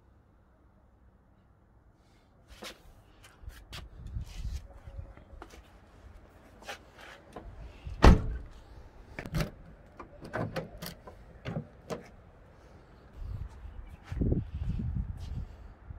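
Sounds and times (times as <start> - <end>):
car door shutting: 8.0 - 8.4.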